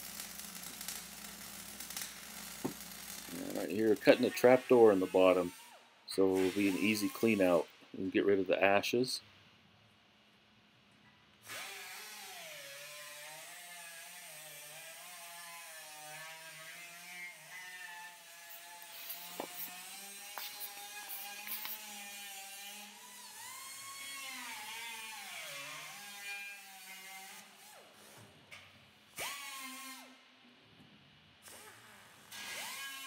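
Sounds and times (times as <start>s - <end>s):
cut-off tool whining through steel: 11.4s - 28.2s, 29.2s - 30.2s, 31.5s - 33.0s.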